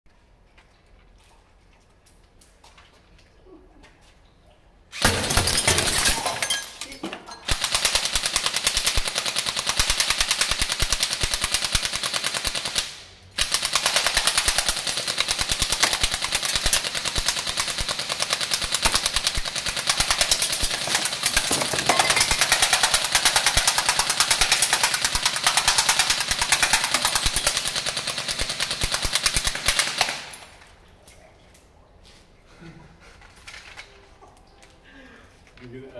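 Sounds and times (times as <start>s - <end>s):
airsoft gun firing full auto: 4.9s - 6.3s, 7.5s - 30.6s.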